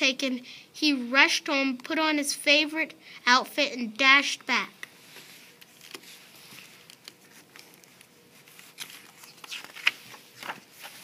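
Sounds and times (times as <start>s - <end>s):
paper pages rustling: 5.1s - 11.0s.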